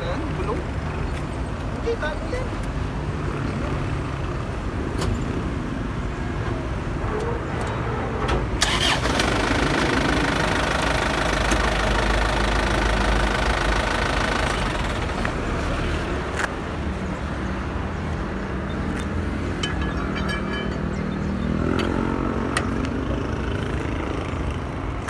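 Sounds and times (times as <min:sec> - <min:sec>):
vehicle engine running: 0:09.0 - 0:15.9.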